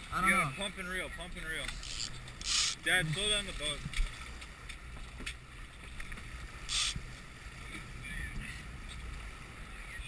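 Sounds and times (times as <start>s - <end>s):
boat engine and wake rumble: 0.0s - 10.0s
short hiss: 1.8s - 2.8s, 6.7s - 7.0s.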